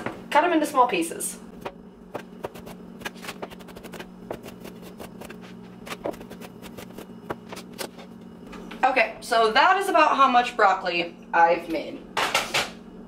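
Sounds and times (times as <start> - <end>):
knife chopping on cutting board: 1.6 - 8.0.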